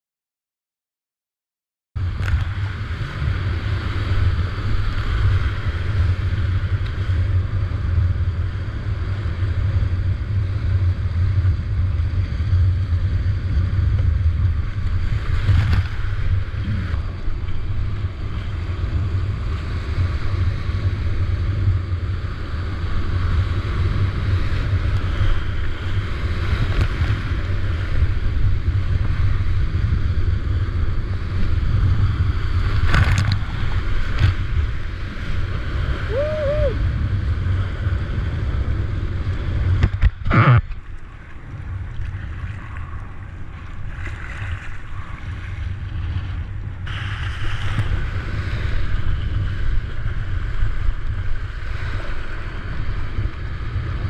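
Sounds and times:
wind on microphone: 2.0 - 54.0
whitewater rapids rushing: 35.9 - 36.8.

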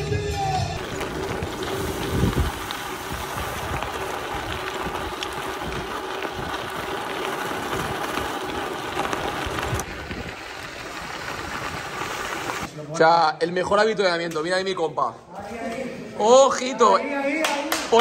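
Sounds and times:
wind on microphone: 0.8 - 12.7.

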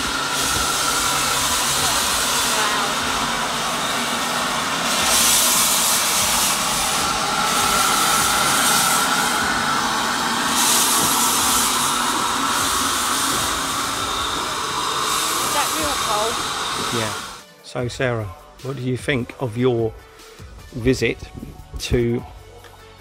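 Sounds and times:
steam engine hissing steam: 0.0 - 17.4.

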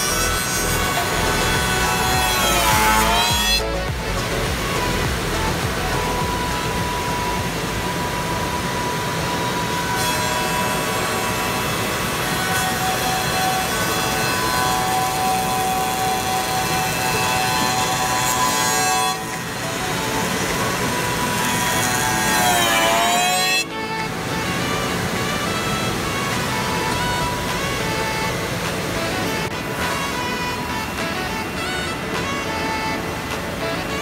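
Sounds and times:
sanding drums rubbing wood: 0.0 - 7.8, 9.5 - 23.8
motor whine: 0.0 - 34.0.

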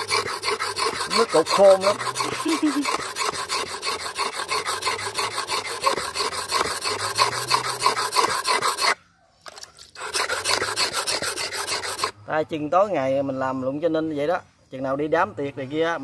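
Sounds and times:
knife scraping on whetstone: 0.0 - 12.1.

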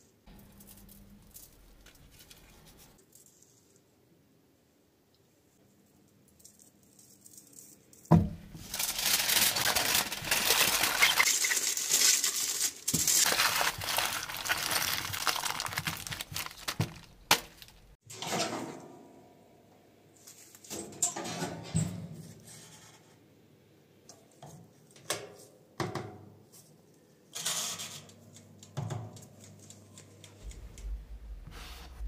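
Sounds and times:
aluminium foil crinkling: 0.3 - 3.7, 6.4 - 18.0.

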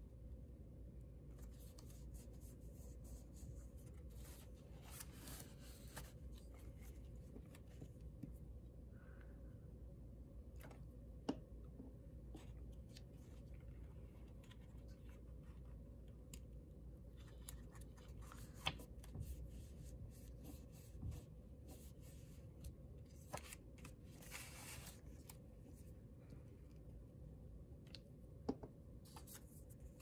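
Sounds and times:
paper rustling: 1.3 - 8.0, 17.1 - 22.4, 23.1 - 25.6.

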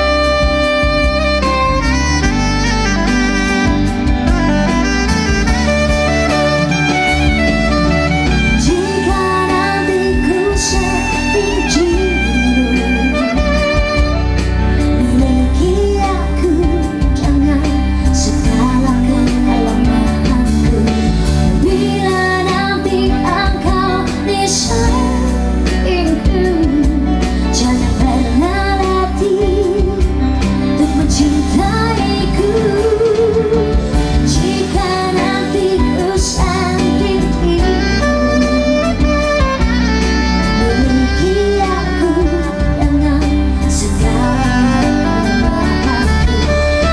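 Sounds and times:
saxophone playing: 0.0 - 22.2, 35.2 - 46.9
bass guitar: 0.0 - 46.9
electric keyboard: 0.0 - 46.9
woman and man singing duet: 40.6 - 46.6.

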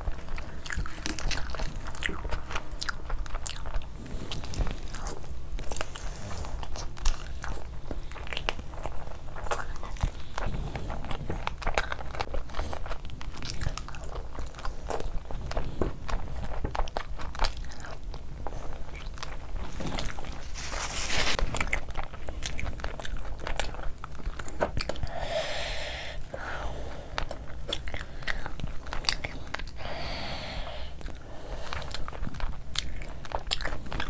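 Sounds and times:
chewing and biting: 0.0 - 25.2, 27.1 - 29.8, 30.9 - 34.0
food handling noise: 4.6 - 25.2.

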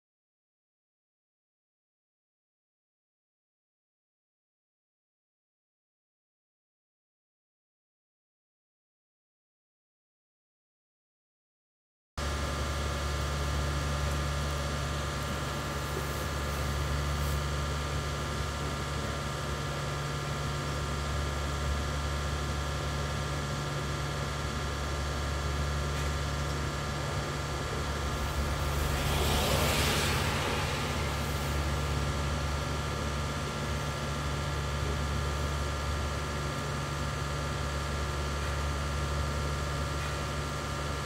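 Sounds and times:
mechanical hum with low drone: 12.2 - 41.0
rushing hiss: 15.1 - 17.9, 27.8 - 33.8.

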